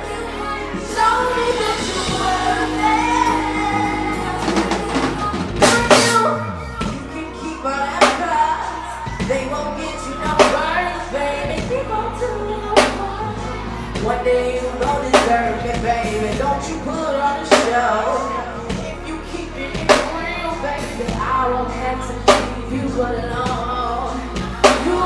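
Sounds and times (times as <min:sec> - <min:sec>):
deep steady bass: 0:00.0 - 0:25.0
woman singing into a microphone: 0:00.0 - 0:25.0
heavy drum hits: 0:02.0 - 0:07.2.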